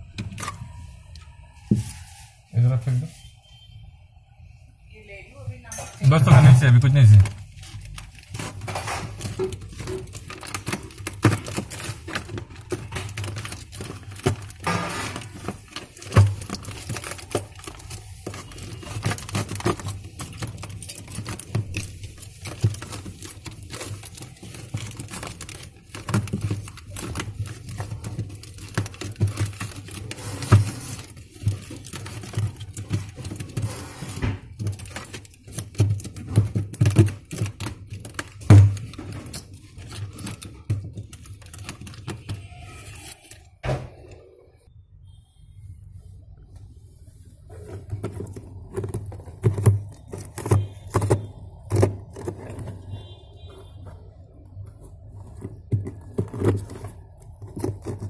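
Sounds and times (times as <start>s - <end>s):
items handled in a freezer: 0.0s - 58.0s.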